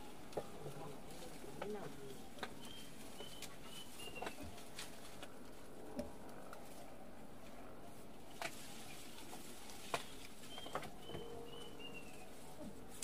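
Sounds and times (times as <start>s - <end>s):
twigs snapping and clicking: 1.6s - 6.7s, 8.3s - 11.2s
bird chirps: 2.6s - 4.4s, 10.4s - 12.3s.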